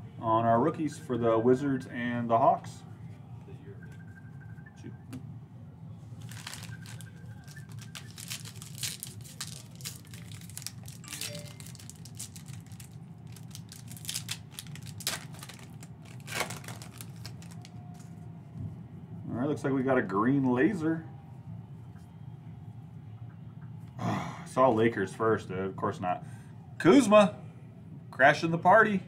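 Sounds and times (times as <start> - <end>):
plastic wrappers crinkling and tearing: 6.2 - 18.1.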